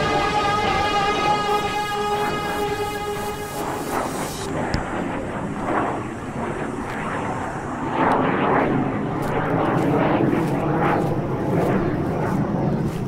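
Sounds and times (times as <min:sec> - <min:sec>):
military plane flying overhead: 0:00.0 - 0:13.0.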